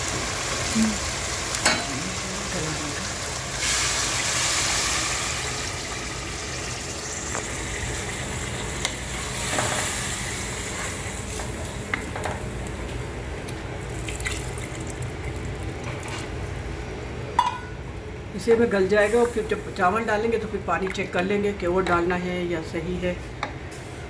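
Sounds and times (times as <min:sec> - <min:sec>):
water pouring and sizzling: 0:00.0 - 0:16.8.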